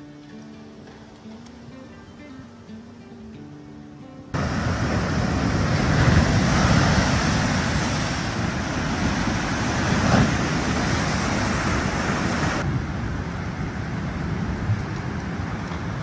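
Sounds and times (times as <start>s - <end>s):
rushing water roar: 4.3s - 16.0s.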